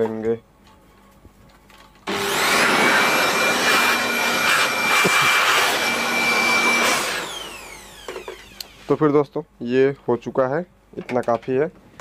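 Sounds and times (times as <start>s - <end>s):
electric air blower rushing: 2.1s - 9.0s.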